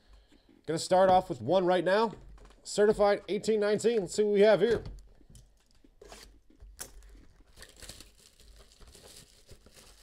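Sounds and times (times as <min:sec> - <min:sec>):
cardboard wrapping tearing: 0:07.5 - 0:10.0.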